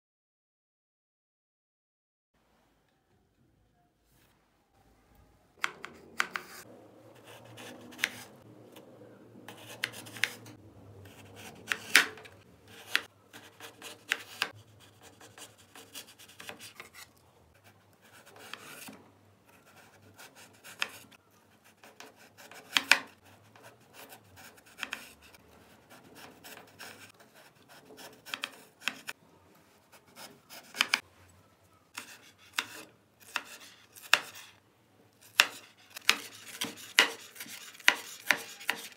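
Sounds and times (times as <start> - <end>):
knife slicing potato: 5.6 - 8.9, 9.5 - 31.0, 31.9 - 34.6, 35.2 - 38.9.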